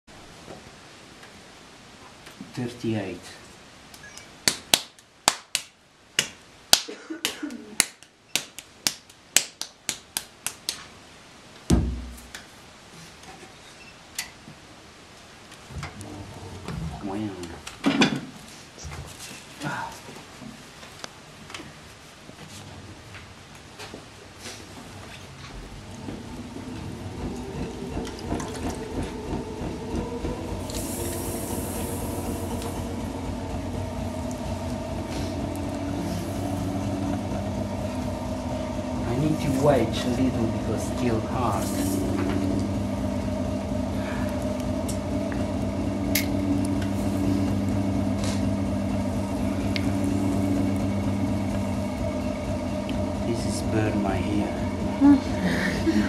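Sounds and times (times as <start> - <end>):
hands slapping clay: 4.4 - 10.9
low hum: 24.8 - 56.0
gas torch hissing: 25.5 - 56.0.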